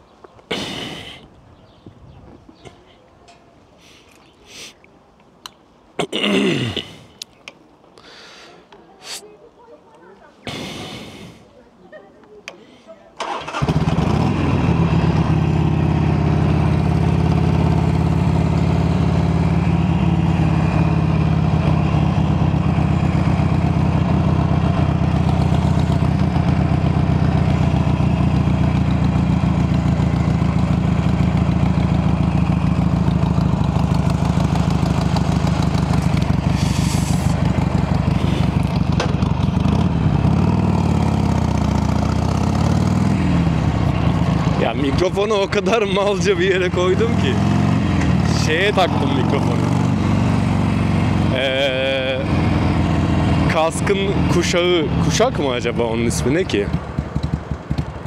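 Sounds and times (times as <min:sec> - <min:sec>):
motorcycle engine starting and idling: 0:13.2 - 0:58.0.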